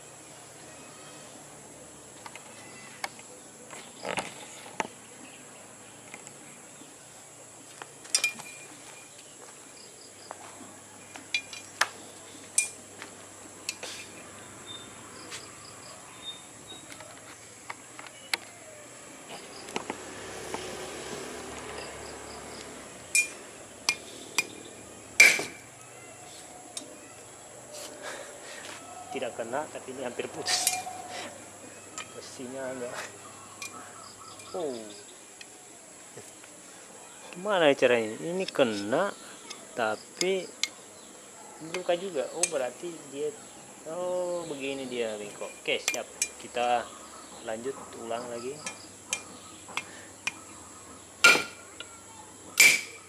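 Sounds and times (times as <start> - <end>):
high insect drone: 0.0 - 53.0
machete clanking on steel rod: 8.1 - 8.6, 23.1 - 24.6, 25.2 - 25.6, 51.2 - 51.6, 52.6 - 53.0.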